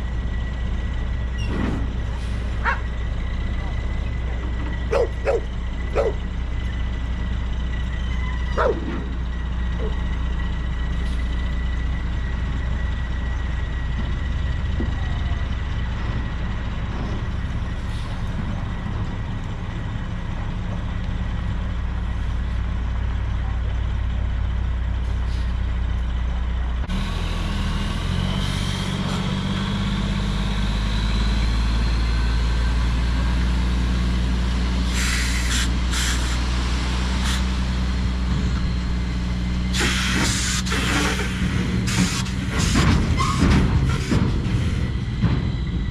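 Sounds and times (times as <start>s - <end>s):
diesel truck engine running: 0.0s - 45.9s
compressed air hissing: 39.7s - 42.7s.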